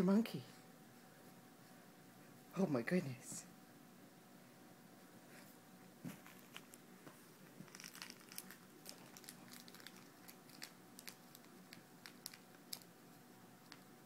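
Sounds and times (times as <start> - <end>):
faint toy crinkling and clicking: 6.1 - 14.0.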